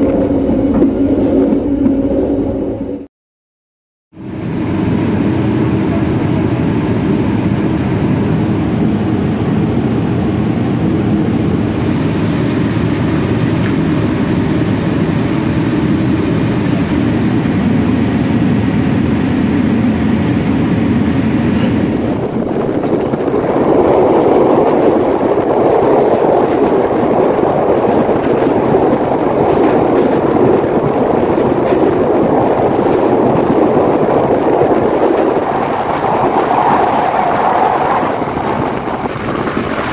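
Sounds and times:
train engine hum: 0.0 - 3.1, 4.2 - 39.9
train wheels clattering on track: 20.7 - 39.9.

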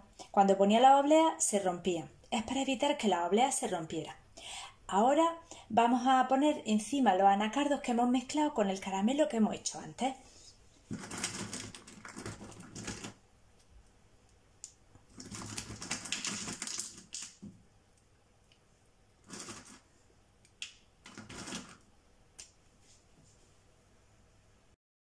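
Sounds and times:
nuts rattling in a bowl: 15.1 - 17.4, 19.2 - 19.8.

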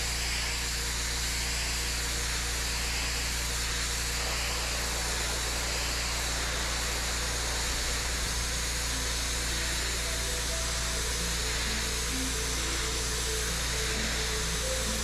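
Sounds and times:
low drone: 4.0 - 15.0.

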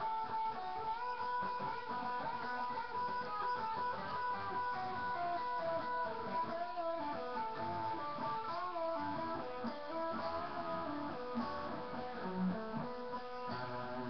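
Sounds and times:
electric guitar: 0.0 - 14.0.

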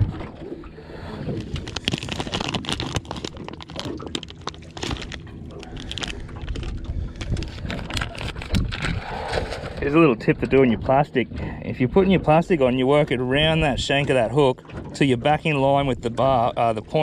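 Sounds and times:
plastic packet crinkling: 1.4 - 8.9.

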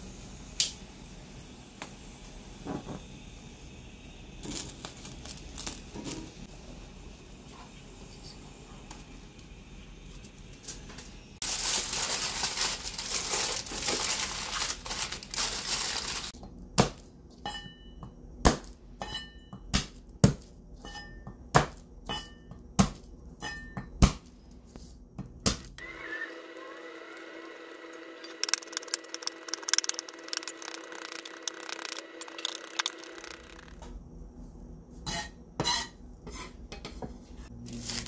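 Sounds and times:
garlic skins crackling: 4.5 - 5.9, 11.4 - 16.4, 26.8 - 33.8.

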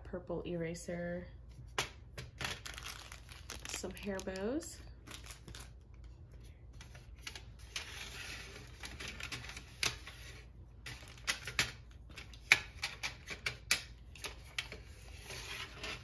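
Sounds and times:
pencils rustling: 1.6 - 16.0.

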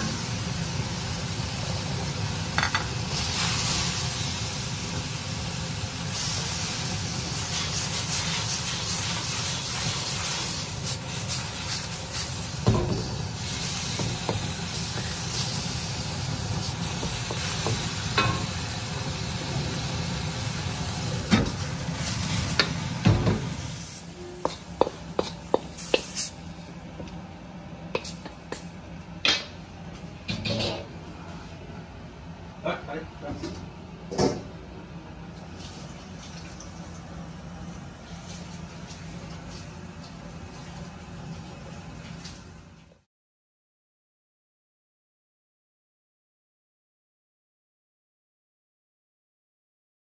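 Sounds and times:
prawns sizzling in a wok: 0.0 - 26.6
spatula scraping a wok: 23.8 - 26.4.

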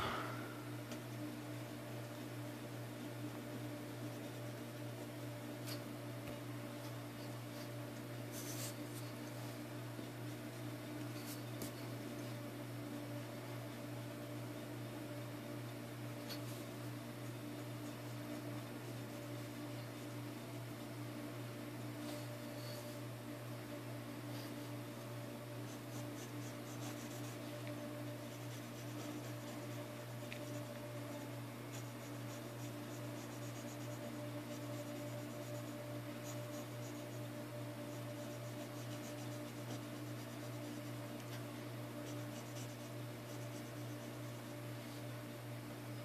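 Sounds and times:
steady low hum: 0.0 - 46.0
pencil scratching on paper: 4.0 - 5.9, 6.8 - 9.4, 16.2 - 20.8, 25.7 - 44.6.

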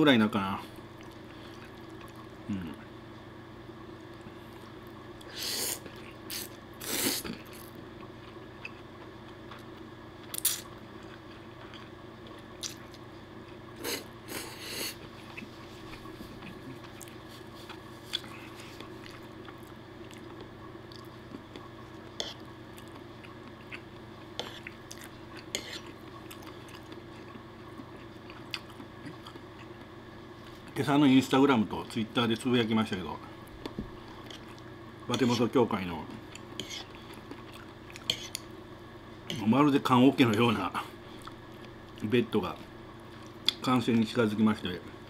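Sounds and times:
chewing: 7.2 - 14.4, 15.0 - 30.7, 33.6 - 35.4, 36.1 - 38.5, 41.1 - 42.0.

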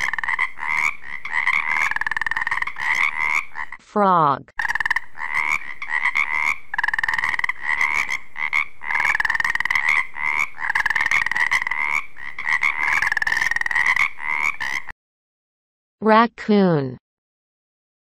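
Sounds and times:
frogs croaking: 0.0 - 3.8, 4.5 - 14.9.

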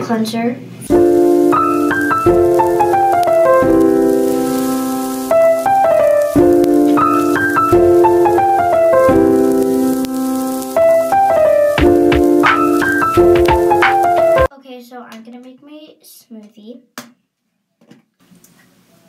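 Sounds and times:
keyboard melody: 0.9 - 14.5.

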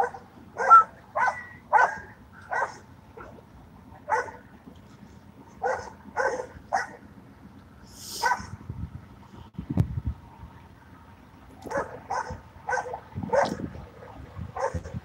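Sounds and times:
dog barking: 0.0 - 3.4, 4.1 - 4.4, 5.6 - 7.0, 8.2 - 8.5, 11.7 - 13.6, 14.6 - 15.0.

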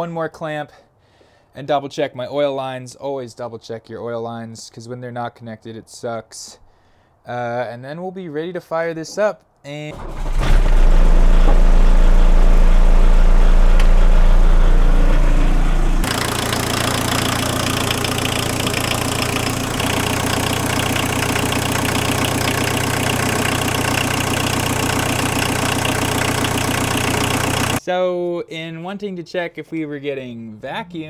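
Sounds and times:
diesel engine idling: 10.1 - 27.8.

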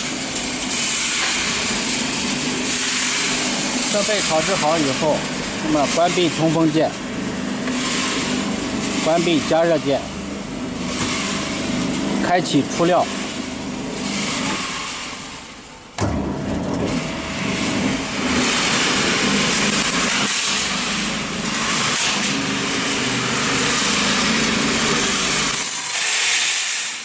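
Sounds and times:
roasting machine motor running: 0.0 - 27.0
nuts sliding and rattling: 21.5 - 27.0.

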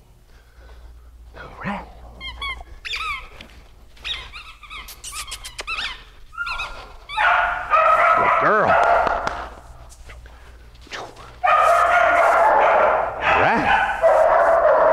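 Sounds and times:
dog whining and squeaking: 2.1 - 7.6.

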